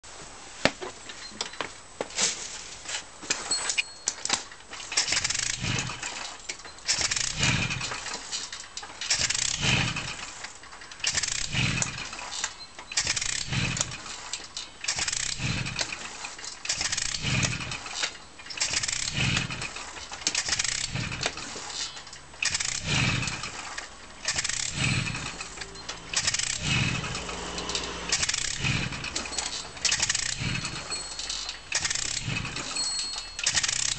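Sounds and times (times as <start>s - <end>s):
moped engine turning over: 3.5s - 33.9s.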